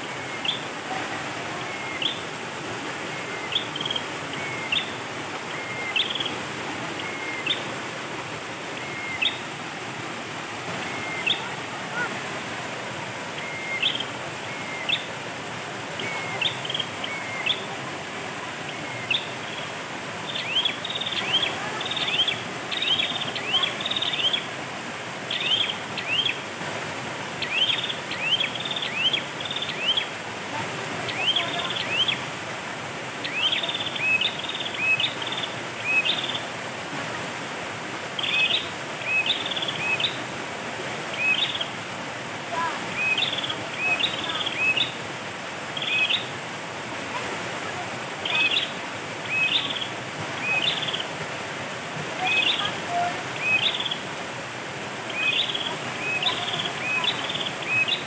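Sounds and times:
stream flowing over rocks: 0.0s - 58.0s
bird chirping: 3.1s - 6.4s, 8.8s - 9.4s, 19.0s - 24.4s, 33.2s - 36.4s, 41.1s - 41.7s, 48.2s - 51.0s, 53.4s - 54.0s, 55.1s - 58.0s.

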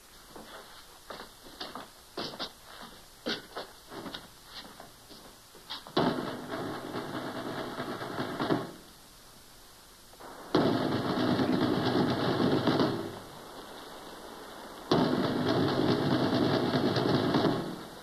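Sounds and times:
fast dense rattle: 6.0s - 8.9s, 10.2s - 18.0s.

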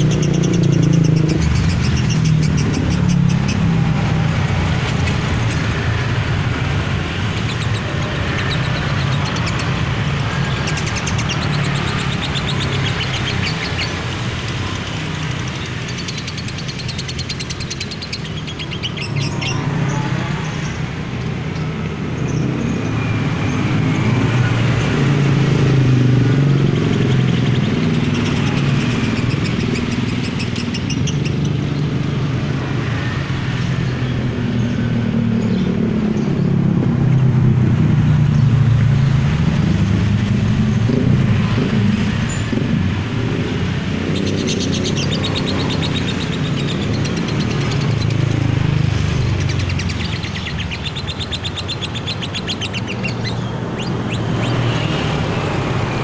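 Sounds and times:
passing cars and motorbikes: 0.0s - 56.0s
lovebird chattering trill: 49.3s - 55.0s.

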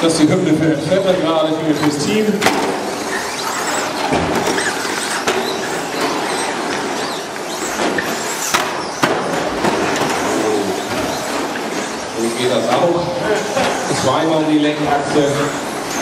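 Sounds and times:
rc truck motors and tyres: 1.6s - 16.0s.

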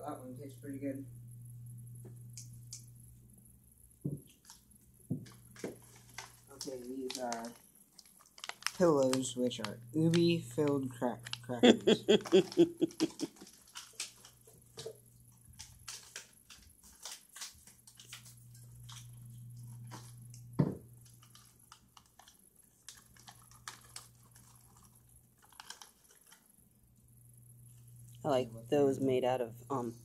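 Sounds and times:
plastic wrapper crackling: 5.2s - 11.6s, 12.3s - 20.4s, 21.0s - 26.6s.

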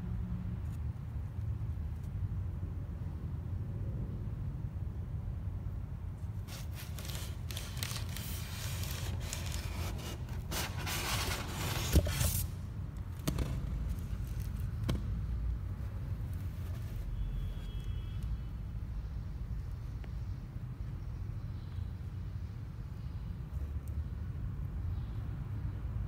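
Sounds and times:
scraping rustling noise: 6.2s - 12.6s, 15.7s - 17.8s.

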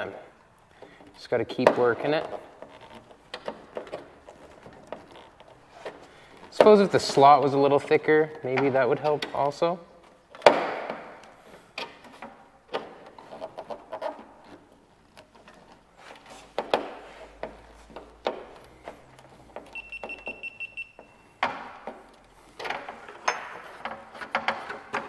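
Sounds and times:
high steady beep tone: 19.8s - 21.4s.

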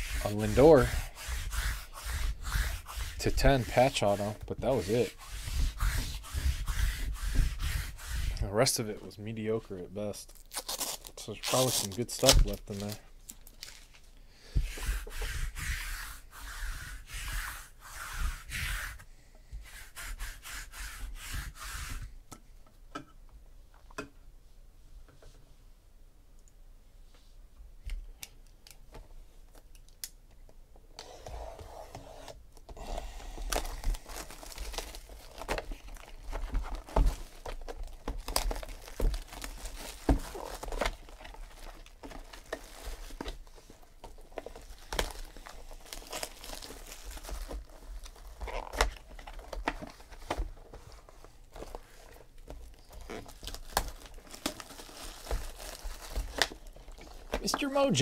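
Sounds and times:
plastic wrap crinkling and tearing: 10.2s - 14.1s, 33.4s - 50.7s, 51.5s - 57.9s.

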